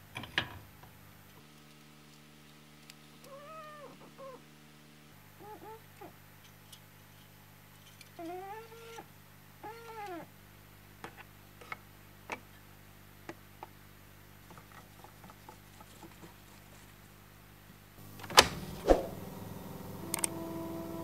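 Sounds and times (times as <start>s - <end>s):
cat meowing: 3.2s - 4.4s, 5.4s - 6.2s, 8.2s - 10.3s
loud clunk of machine switch: 18.2s - 19.1s.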